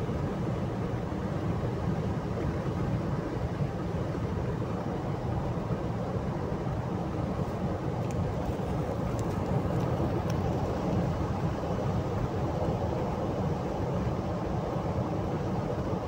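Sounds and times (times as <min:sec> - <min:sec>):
car cabin road and engine noise: 0:05.4 - 0:14.0.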